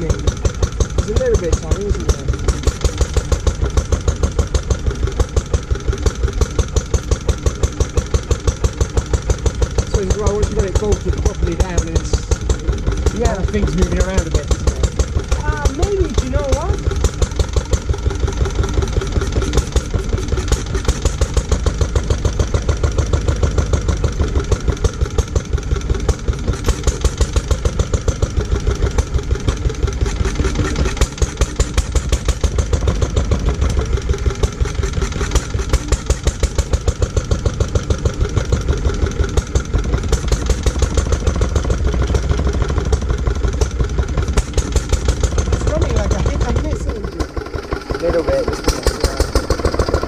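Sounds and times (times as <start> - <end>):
stationary engine running: 0.0 - 50.0.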